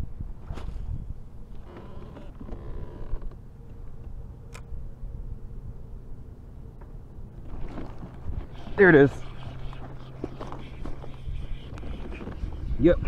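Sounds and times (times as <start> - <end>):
kayak creaking: 1.5 - 3.4, 7.4 - 12.6.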